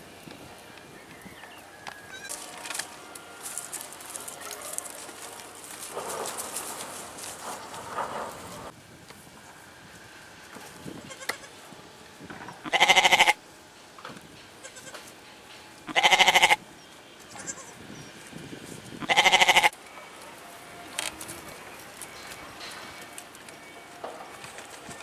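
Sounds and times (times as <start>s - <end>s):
goat bleating: 2.1s - 5.8s, 11.0s - 11.6s, 12.6s - 13.4s, 14.6s - 15.0s, 15.9s - 16.6s, 17.3s - 17.8s, 19.0s - 19.8s.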